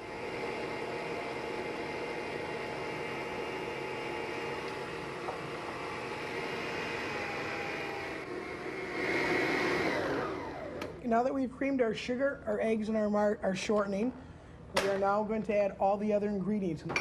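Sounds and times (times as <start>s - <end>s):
stand mixer motor whirring: 0.0s - 11.0s.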